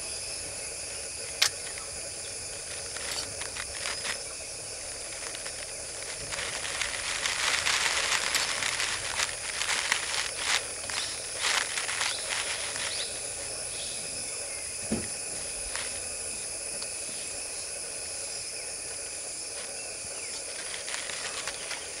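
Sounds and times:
crackling rustles: 0.0 - 22.0
insects trilling: 0.0 - 22.0
dull thump: 14.8 - 15.2.

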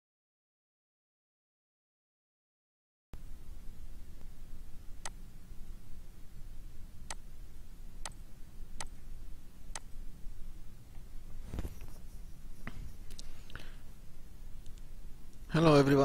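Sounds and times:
steady low hum: 3.2 - 16.0
sharp clicks: 8.0 - 8.2, 8.8 - 9.0, 14.6 - 15.4.

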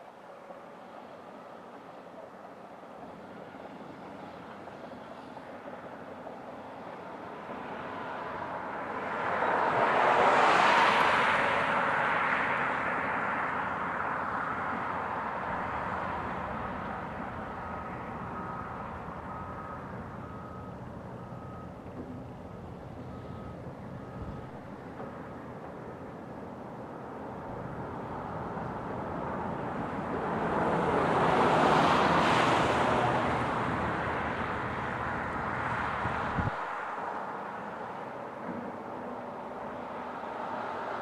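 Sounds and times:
faint reversing alarm beeps: 0.3 - 8.7, 15.5 - 26.9
vehicle passing: 7.7 - 20.6, 27.4 - 38.0.

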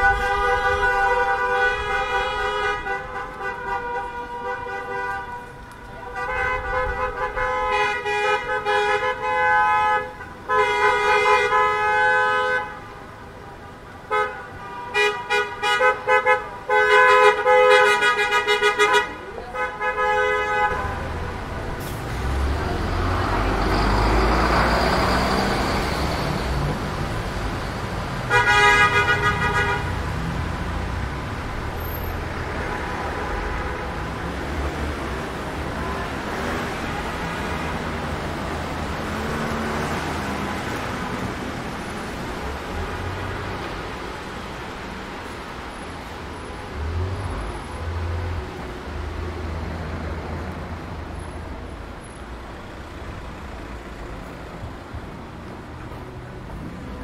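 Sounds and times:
car horns honking: 0.0 - 13.0, 14.0 - 21.3, 28.3 - 30.1
vehicle passing by: 21.7 - 27.3.

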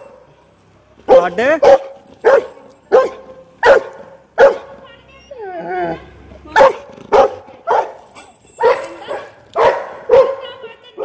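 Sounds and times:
dog barking: 1.1 - 4.8, 6.6 - 11.0
dog whining: 5.2 - 6.1.

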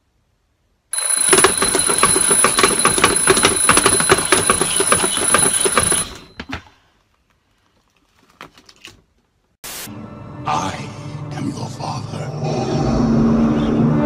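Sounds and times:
alarm clock bells ringing: 0.9 - 6.4.

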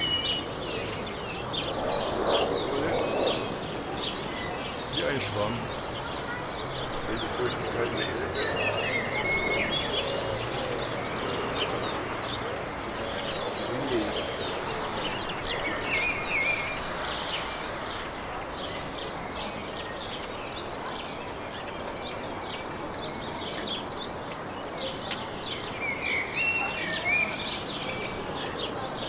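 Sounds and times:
birds chirping and warbling: 0.0 - 29.0
steady rushing noise: 0.4 - 7.5.

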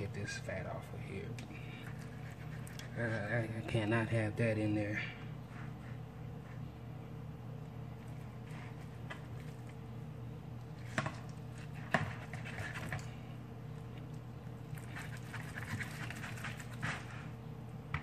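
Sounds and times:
knife scraping through fat: 14.7 - 17.3.

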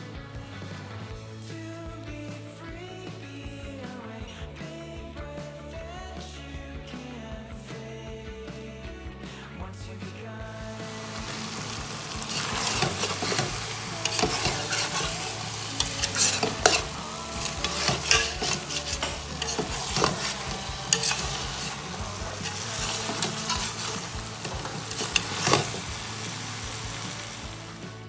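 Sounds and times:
food sizzling in a pot: 10.7 - 28.0
metal spatula scraping a pot: 11.6 - 26.1.

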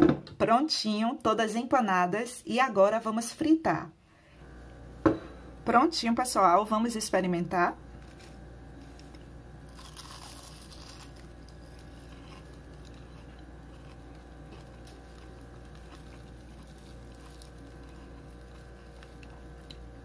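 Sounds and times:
steady background hum: 0.0 - 20.0
crisp crunch of fried food: 7.9 - 20.0
soft chewing: 8.0 - 20.0.

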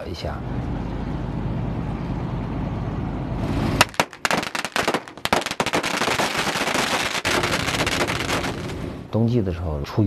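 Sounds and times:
firecrackers banging: 3.6 - 9.1.

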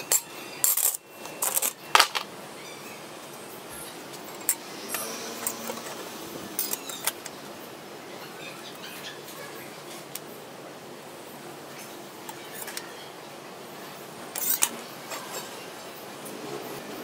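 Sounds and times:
metal clanks and clinks: 0.0 - 2.3, 4.1 - 7.4, 14.3 - 15.6.

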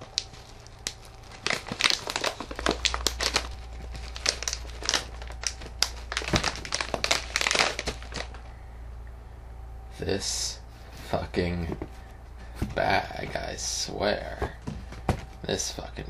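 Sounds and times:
plastic snack bag crinkling: 0.0 - 8.5.

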